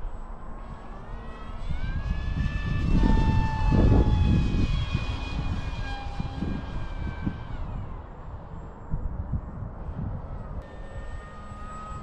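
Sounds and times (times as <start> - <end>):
small electric motor whine: 0.0 - 12.0.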